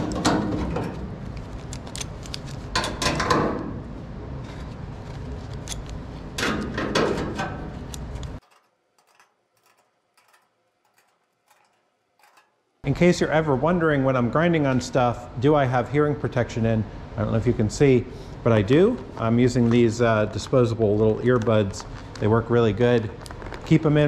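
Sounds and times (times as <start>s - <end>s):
steady background hum: 0.0s - 24.0s
metal parts clattering and scraping: 6.4s - 12.7s.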